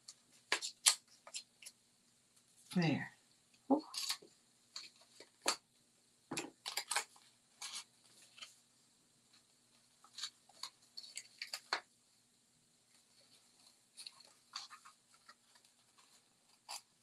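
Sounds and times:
paper and ribbon rustling: 6.6s - 8.7s, 12.8s - 17.0s.

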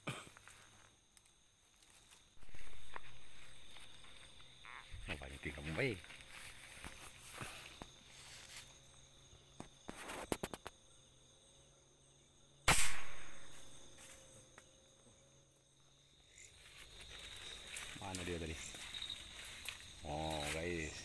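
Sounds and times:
night insects chirping: 0.0s - 21.0s
air rifle shot: 12.6s - 13.6s.

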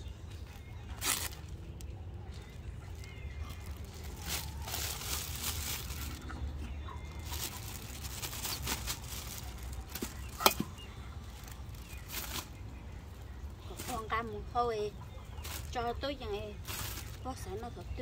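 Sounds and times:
rustling and tearing: 0.4s - 6.4s, 7.1s - 10.7s, 11.3s - 12.6s, 16.6s - 17.2s.

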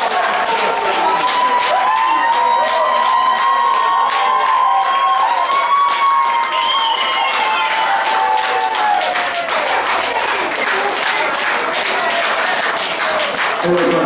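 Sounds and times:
crowd clapping: 0.0s - 14.0s
spectators cheering: 0.0s - 14.0s
long high shouts: 1.0s - 9.0s.

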